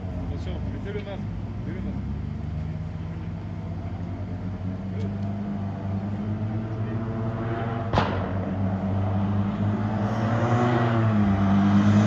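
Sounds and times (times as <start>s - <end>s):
rally car engine approaching: 0.0s - 12.0s
sharp crack: 7.9s - 8.6s.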